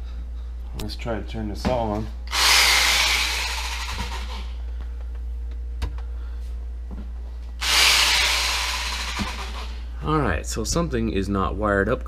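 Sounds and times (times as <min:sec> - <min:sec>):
power saw motor running: 0:02.3 - 0:04.5, 0:07.6 - 0:09.8.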